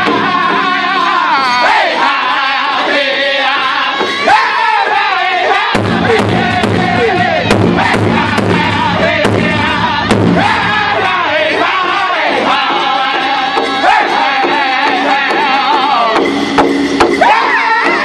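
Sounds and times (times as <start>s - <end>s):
drum group singing in unison: 0.0s - 18.0s
large hide drum beating: 3.9s - 18.0s.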